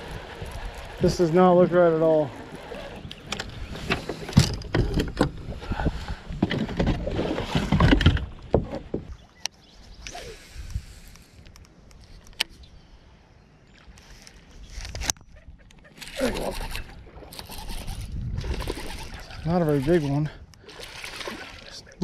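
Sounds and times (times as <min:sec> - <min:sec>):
rustling and knocking on boat deck: 0:03.2 - 0:09.2.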